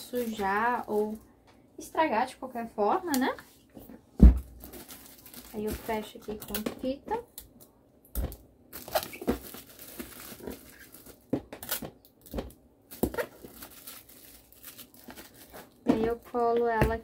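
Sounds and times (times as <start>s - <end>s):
plastic crinkling: 0.0s - 1.3s, 4.4s - 16.6s
packing tape ripping: 8.7s - 15.8s.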